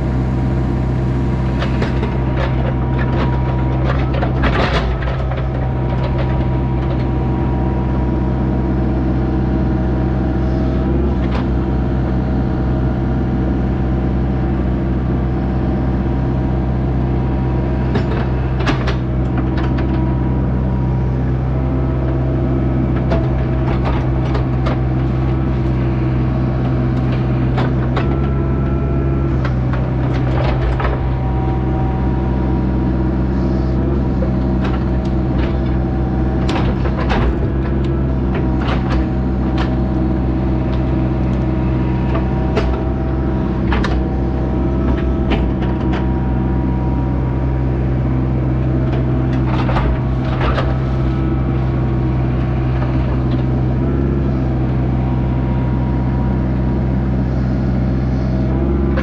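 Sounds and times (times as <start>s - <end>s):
diesel engine running: 0.0s - 59.0s
machine clanks and knocks: 1.6s - 7.2s, 17.8s - 20.1s, 29.3s - 31.6s, 34.1s - 39.9s, 42.0s - 46.2s, 48.9s - 51.3s.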